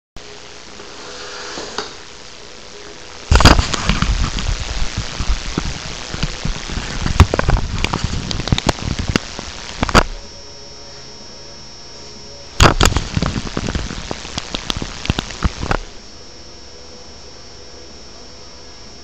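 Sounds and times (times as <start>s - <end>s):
low steady hum: 0.2s - 19.0s
crackling and rustling on microphone: 3.3s - 10.2s, 12.6s - 16.0s.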